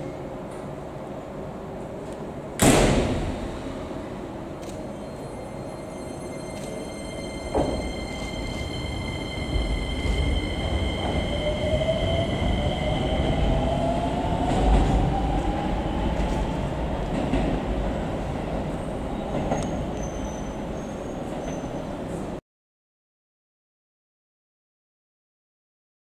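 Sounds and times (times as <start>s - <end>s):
rumble of train wheels: 0.0s - 22.4s.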